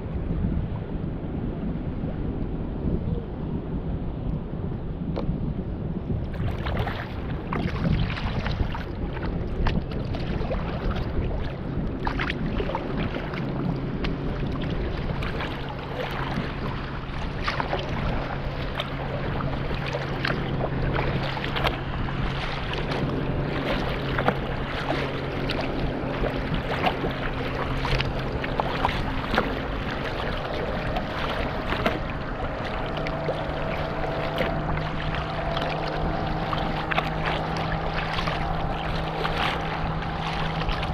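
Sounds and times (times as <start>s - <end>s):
water slapping kayak hull: 0.0s - 40.9s
wind buffeting microphone: 0.0s - 40.9s.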